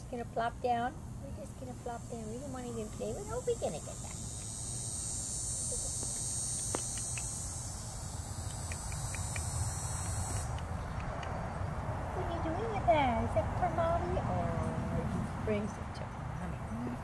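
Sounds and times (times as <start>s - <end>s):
insects buzzing: 0.0s - 17.0s
faint clicks: 6.6s - 7.3s, 8.4s - 11.4s.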